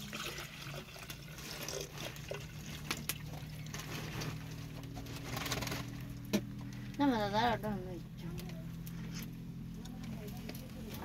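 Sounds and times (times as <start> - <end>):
thick liquid pouring into cup: 0.0 - 4.8.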